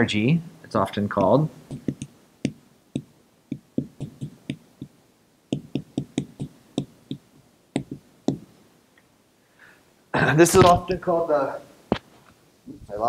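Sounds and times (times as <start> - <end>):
marker clicking on whiteboard: 1.2 - 8.5.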